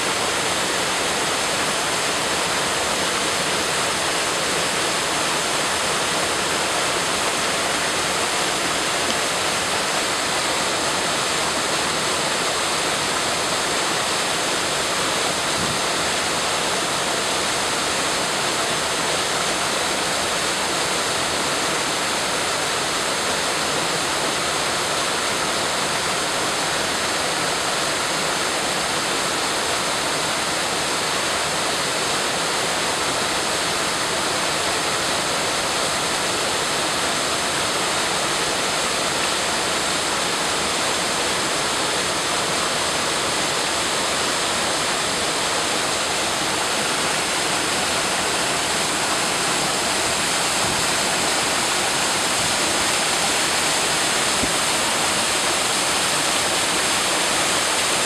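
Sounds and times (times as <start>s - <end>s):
waterfall rushing and splashing: 0.0s - 58.0s.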